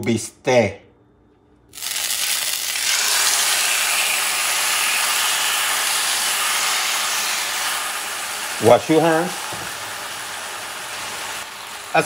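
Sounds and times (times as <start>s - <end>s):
steak sizzling in a skillet: 1.8s - 12.0s.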